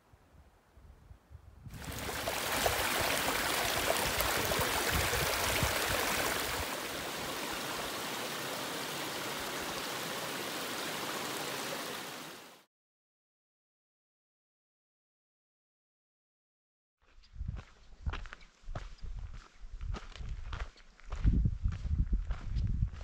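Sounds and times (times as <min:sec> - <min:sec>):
creek running over rocks: 0:01.7 - 0:12.6.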